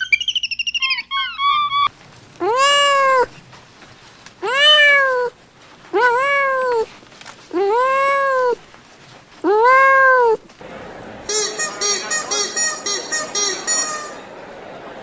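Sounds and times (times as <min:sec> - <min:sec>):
kittens meowing: 0:04.4 - 0:05.3.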